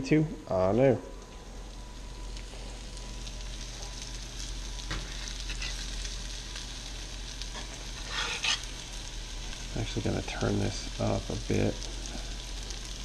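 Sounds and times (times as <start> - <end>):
fish sizzling in a skillet: 1.4 - 13.0
spatula scraping a skillet: 5.1 - 6.0, 7.5 - 8.9.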